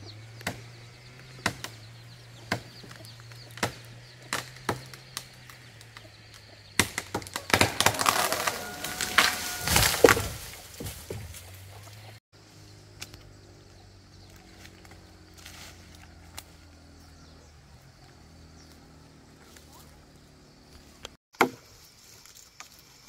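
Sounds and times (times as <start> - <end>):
loud crackling and rustling: 0.0 - 12.2.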